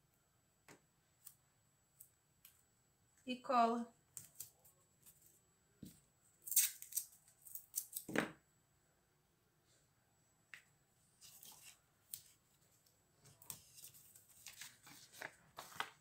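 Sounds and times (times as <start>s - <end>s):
tape and paper rustling: 11.2s - 16.0s.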